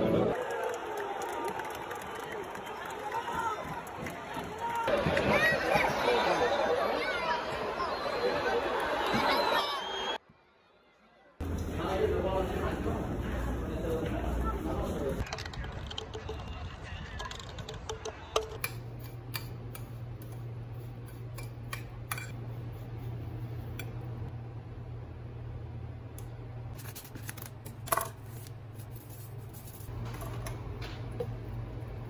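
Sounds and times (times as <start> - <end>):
steady low hum: 18.6 - 32.0.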